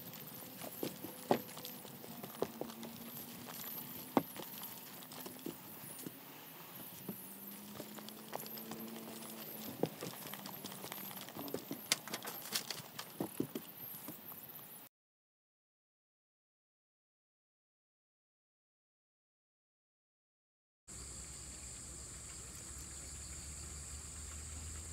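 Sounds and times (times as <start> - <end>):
faint outdoor background noise: 0.0 - 14.9, 20.9 - 24.9
sharp clicks and knocks: 7.0 - 14.2.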